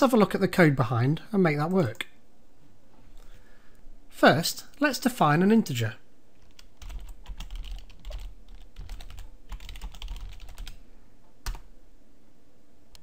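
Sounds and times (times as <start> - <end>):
typing on keyboard: 6.4 - 10.8.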